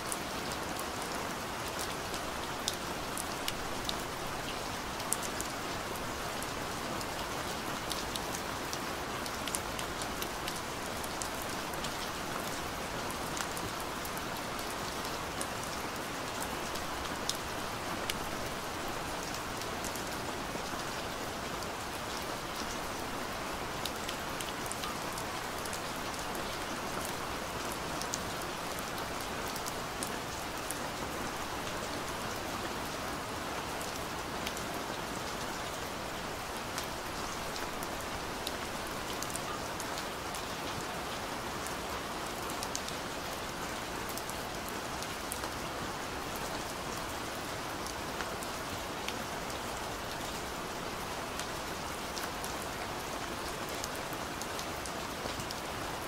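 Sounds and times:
steady rain hiss: 0:00.0 - 0:56.0.

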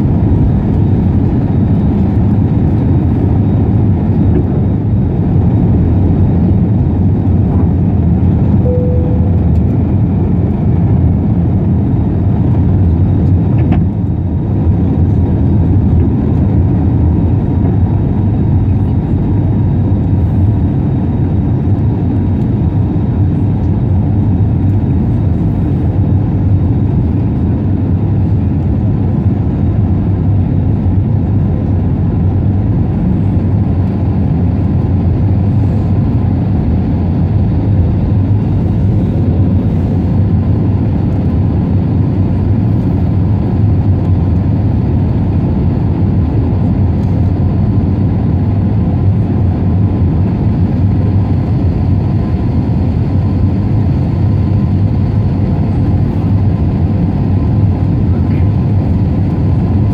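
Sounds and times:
air rushing along fuselage: 0:00.0 - 0:21.4, 0:24.2 - 0:59.9
airplane cabin roar: 0:00.0 - 0:59.9
faint steady hum: 0:08.5 - 0:10.5.

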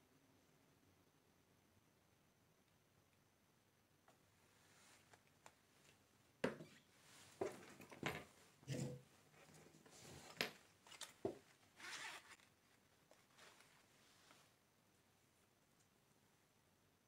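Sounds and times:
rustling: 0:06.6 - 0:14.7.

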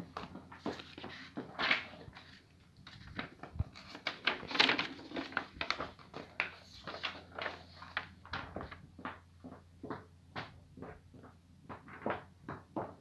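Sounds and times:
paper rustling: 0:00.2 - 0:08.8.

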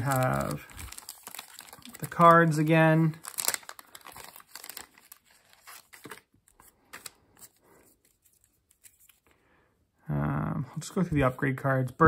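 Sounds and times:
plastic bag crinkling: 0:00.0 - 0:06.3.

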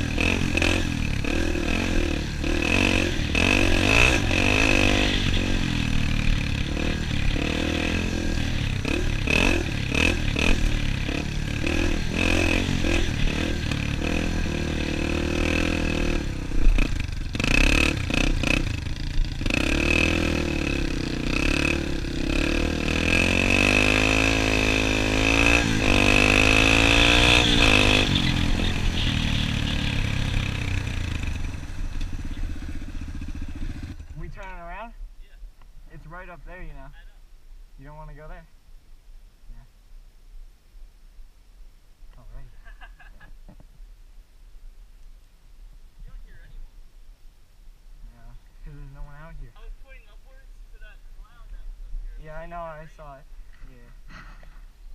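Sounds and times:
dirt bike engine revving: 0:00.0 - 0:34.4.

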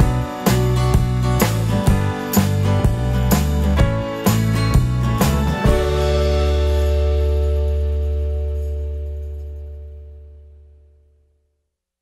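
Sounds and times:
final music chord ringing: 0:05.5 - 0:09.1.

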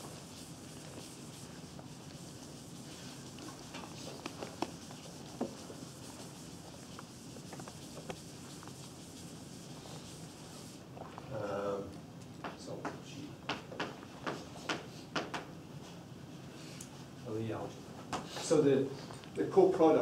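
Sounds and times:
chalk tapping and scratching on blackboard: 0:00.0 - 0:10.8, 0:12.4 - 0:16.0
low room hum: 0:00.0 - 0:20.0.

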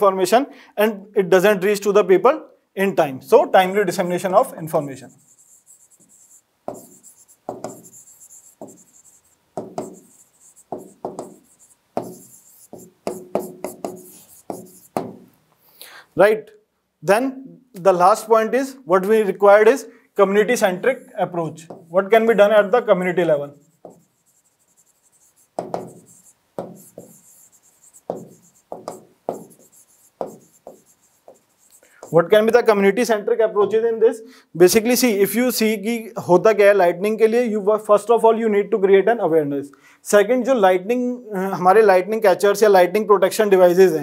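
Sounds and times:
stylus tapping and scraping: 0:05.1 - 0:15.4, 0:21.6 - 0:22.5, 0:23.2 - 0:32.7.

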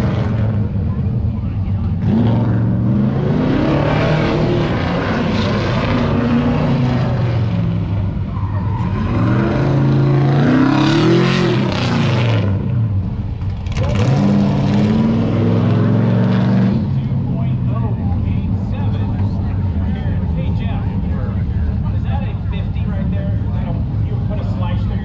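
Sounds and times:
car engine revving hard: 0:02.0 - 0:07.8, 0:08.7 - 0:12.9, 0:13.6 - 0:17.2.

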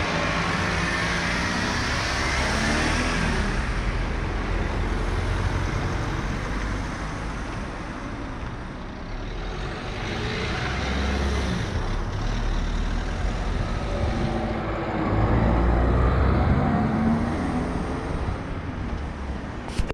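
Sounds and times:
cars driving past: 0:09.1 - 0:19.7.

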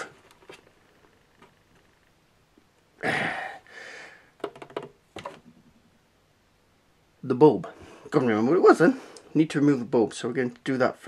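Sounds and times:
breath hiss: 0:03.0 - 0:04.3.

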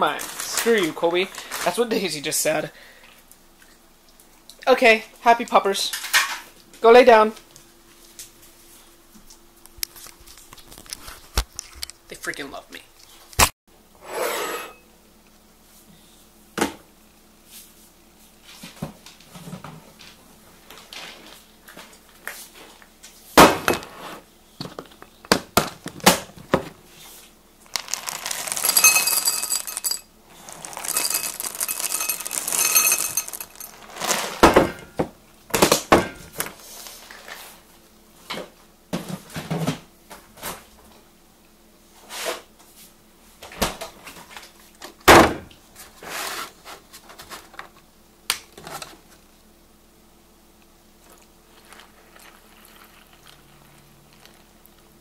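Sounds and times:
rustling: 0:26.8 - 0:34.5
bowls clinking on counter: 0:28.0 - 0:33.9.

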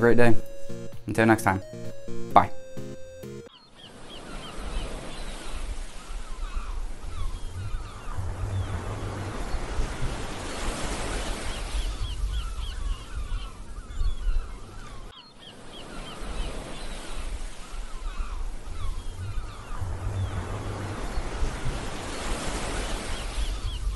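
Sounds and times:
birds chirping: 0:00.0 - 0:23.9
surf washing: 0:03.9 - 0:13.3, 0:15.5 - 0:23.9.

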